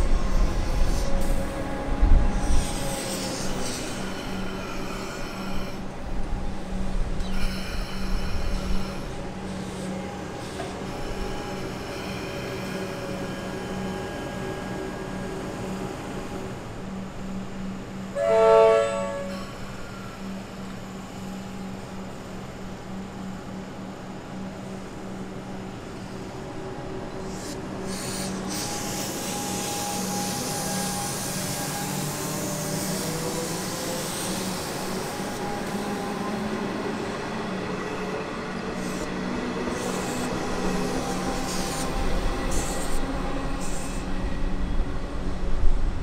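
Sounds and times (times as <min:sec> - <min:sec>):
electric train hum: 0:00.0 - 0:46.0
wheel and rail noise: 0:00.0 - 0:46.0.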